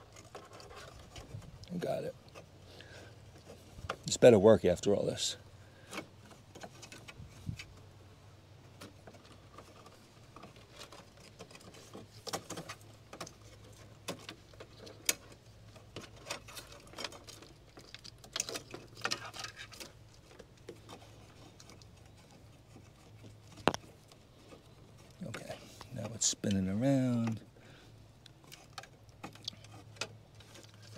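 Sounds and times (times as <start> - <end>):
clicks taps and rustles of handling: 8.7 - 27.5.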